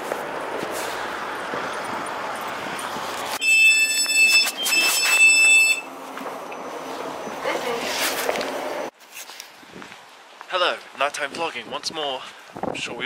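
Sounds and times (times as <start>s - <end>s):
street traffic noise: 0.0s - 12.8s
high-pitched door warning tone: 3.4s - 6.0s.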